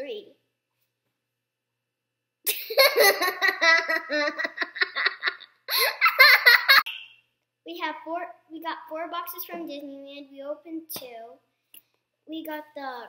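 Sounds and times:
young girl laughing: 2.5s - 6.9s.

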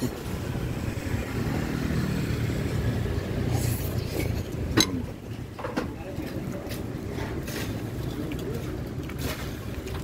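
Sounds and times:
motorcycles passing: 0.0s - 4.8s
road traffic rumble: 0.0s - 10.0s.

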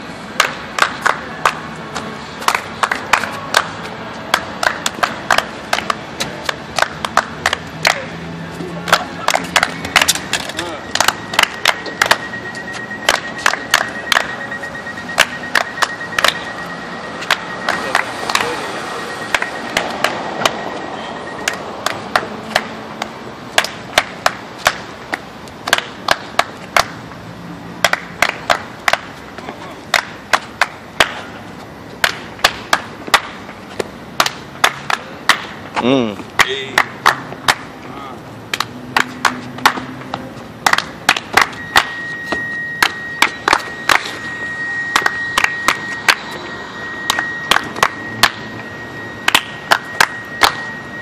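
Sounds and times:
sharp hand claps: 0.4s - 1.6s, 2.4s - 8.1s, 8.9s - 10.3s, 10.9s - 12.2s, 27.8s - 29.1s, 34.2s - 35.5s, 36.4s - 37.7s, 38.5s - 39.9s, 40.6s - 42.0s, 47.1s - 48.4s, 49.3s - 50.6s
thin high tone: 8.0s - 23.0s, 41.3s - 51.0s.

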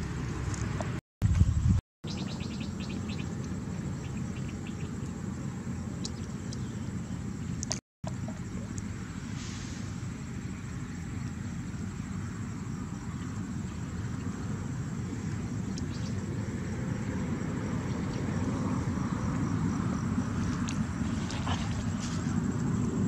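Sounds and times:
steady low rumble: 0.0s - 23.0s
small birds chirping: 2.1s - 5.2s, 5.9s - 7.8s.

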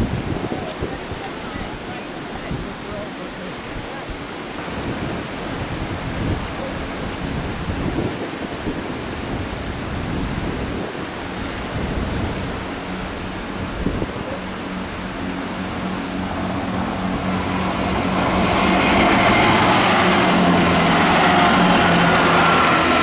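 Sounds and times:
sea washing: 0.0s - 23.0s
wind buffeting microphone: 0.0s - 23.0s
train engine hum: 11.0s - 23.0s.

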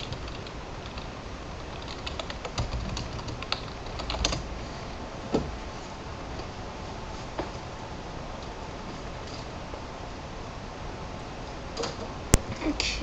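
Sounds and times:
computer keyboard typing: 0.0s - 4.4s.

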